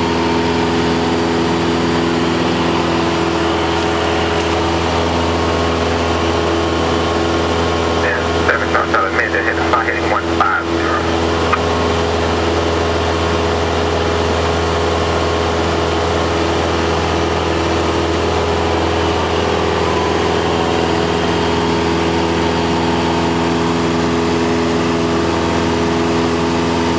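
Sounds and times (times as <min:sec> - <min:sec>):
aircraft engine and propeller droning: 0:00.0 - 0:26.9.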